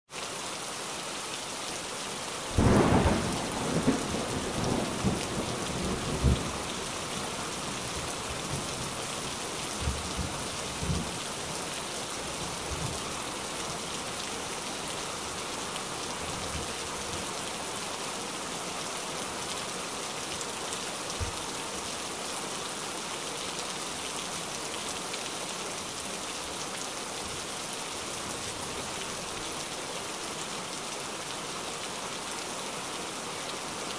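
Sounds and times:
heavy rain falling: 0.2s - 33.9s.

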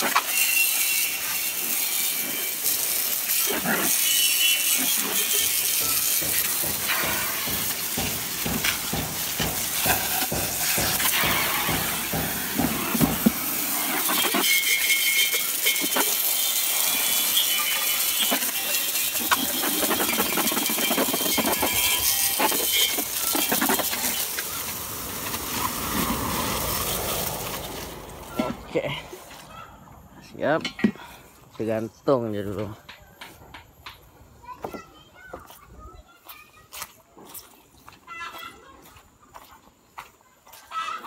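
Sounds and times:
water jet spraying on metal: 0.0s - 29.4s.

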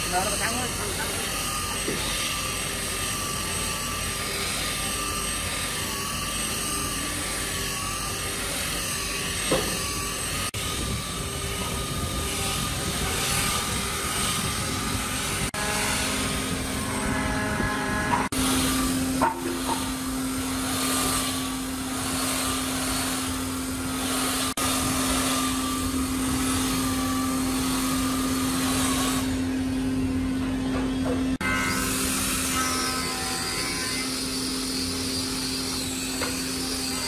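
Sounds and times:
sanding belt hissing on wood: 0.0s - 29.4s
belt sander motor whine: 0.0s - 37.0s.

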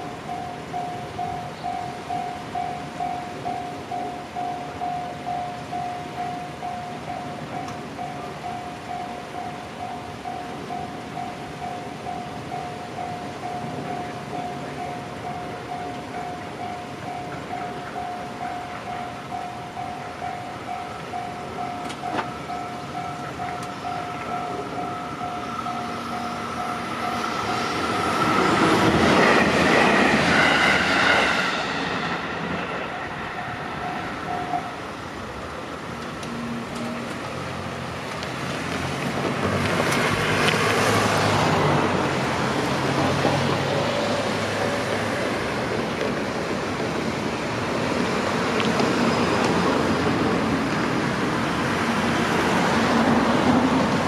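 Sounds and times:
level crossing bell clanging: 0.0s - 28.5s
train passing with loud rush: 0.0s - 54.0s
cars driving over crossing: 21.8s - 54.0s.

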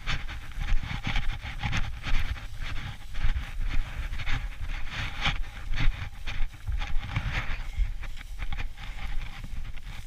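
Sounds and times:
footsteps through dry grass: 0.0s - 10.0s
microphone handling rumble: 0.0s - 10.0s
wind on microphone: 0.0s - 10.0s.

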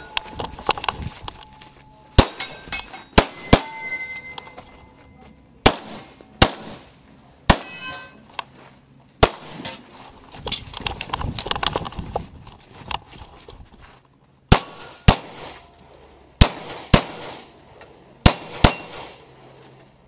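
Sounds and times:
metallic ringing of steel targets: 1.4s - 5.1s, 7.5s - 8.3s, 14.5s - 15.8s, 16.4s - 17.6s, 18.2s - 19.3s
pistol shots: 2.2s - 2.6s, 3.2s - 3.8s, 5.6s - 6.9s, 7.5s - 7.8s, 9.2s - 9.8s, 14.5s - 15.6s, 16.4s - 17.5s, 18.2s - 19.2s.

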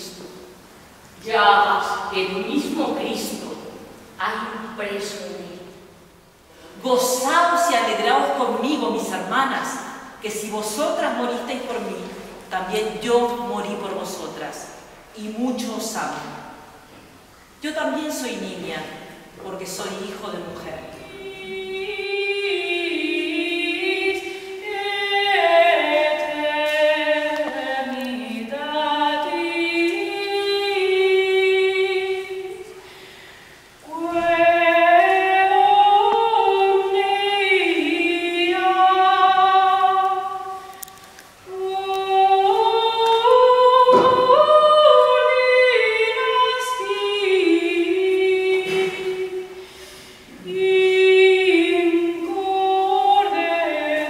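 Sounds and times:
women's choir singing a cappella: 19.7s - 32.8s, 33.8s - 40.8s, 41.4s - 54.0s.

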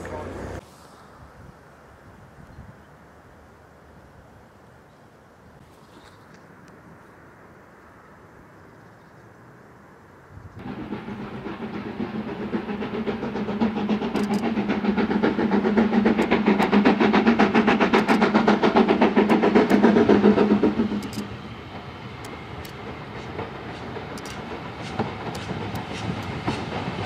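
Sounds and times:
steam locomotive exhaust beating: 10.6s - 27.0s.

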